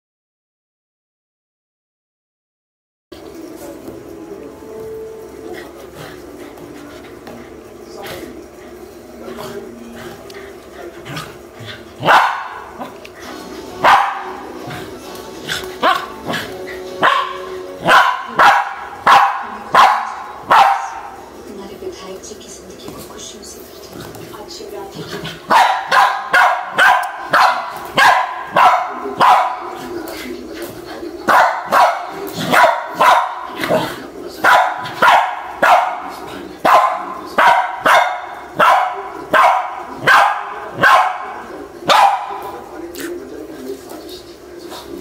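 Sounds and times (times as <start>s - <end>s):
dog barking: 12.0s - 12.8s, 13.8s - 14.5s, 15.8s - 16.4s, 17.0s - 21.2s, 25.5s - 29.7s, 31.3s - 42.5s.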